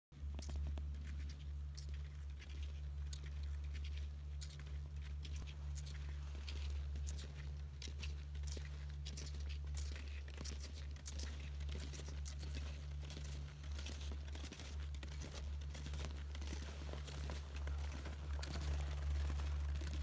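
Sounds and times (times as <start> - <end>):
skis crunching over crusty snow: 0.2 - 20.0
steady low rumble: 0.2 - 20.0.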